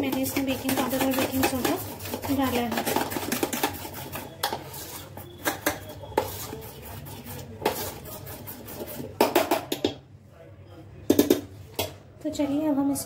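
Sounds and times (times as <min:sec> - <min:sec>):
spoon scraping and clinking bowl: 0:00.0 - 0:09.5.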